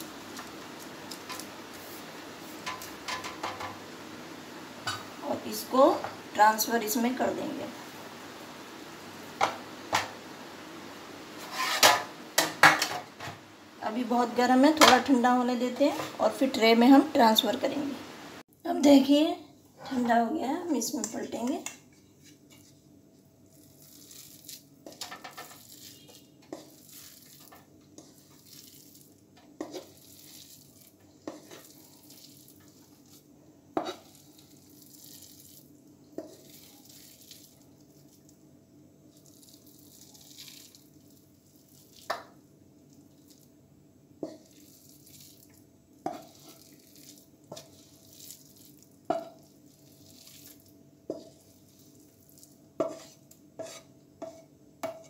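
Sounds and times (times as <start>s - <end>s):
wooden spatula scraping: 0.0s - 3.8s, 11.3s - 13.4s, 14.8s - 16.6s, 20.9s - 22.9s, 23.5s - 38.2s, 44.2s - 55.0s
faint steady hum: 0.0s - 24.0s
spatula knocking on pan: 52.8s - 55.0s.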